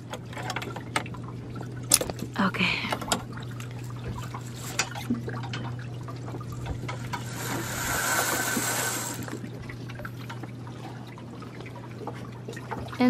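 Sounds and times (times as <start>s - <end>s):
low steady hum: 0.0s - 13.0s
seawater sloshing around hull: 3.0s - 13.0s.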